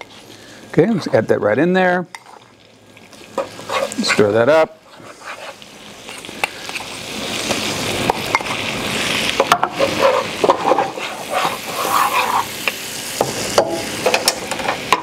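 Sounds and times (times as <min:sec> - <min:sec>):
roux sizzling in a skillet: 0:00.0 - 0:15.0
spoon scraping a pan: 0:03.3 - 0:07.0, 0:09.4 - 0:12.8.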